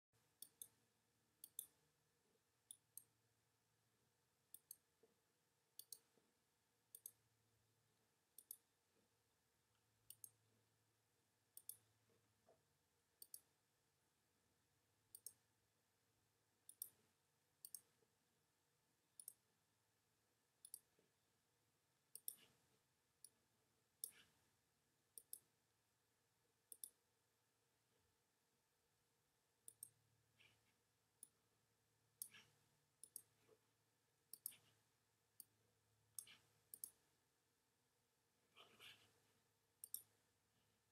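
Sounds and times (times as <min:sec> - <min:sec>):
faint sharp clicks: 0:05.8 - 0:06.2, 0:29.6 - 0:30.6, 0:34.3 - 0:34.8, 0:35.4 - 0:37.0, 0:39.8 - 0:40.2.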